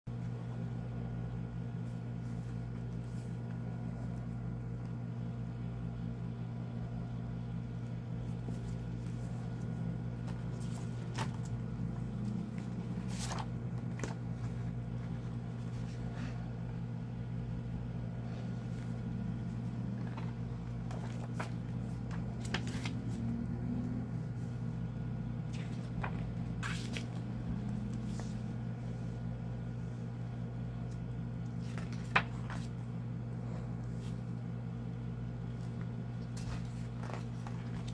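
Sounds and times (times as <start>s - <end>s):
steady low hum: 0.1s - 37.9s
book pages rustling: 1.8s - 5.0s, 7.7s - 16.6s, 18.4s - 24.6s, 25.4s - 29.2s, 30.7s - 32.9s, 35.4s - 37.9s.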